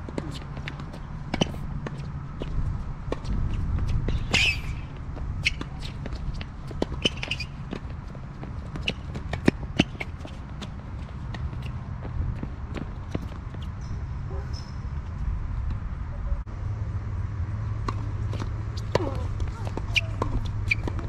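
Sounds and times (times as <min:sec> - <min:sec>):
shoes scuffing on court: 0:00.0 - 0:13.8, 0:17.8 - 0:21.0
racket hitting tennis ball: 0:00.1 - 0:11.8, 0:17.8 - 0:21.0
ball bouncing: 0:17.8 - 0:21.0.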